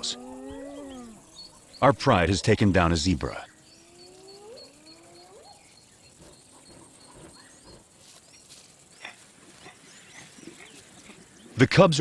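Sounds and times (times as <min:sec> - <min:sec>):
hyenas whooping: 0:00.0 - 0:01.4, 0:03.8 - 0:07.9
bird chirping: 0:00.0 - 0:12.0.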